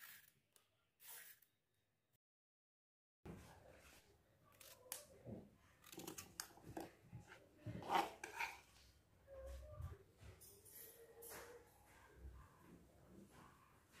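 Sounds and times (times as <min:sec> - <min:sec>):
cutting scraping and knocking in kitchen: 0:04.6 - 0:08.9.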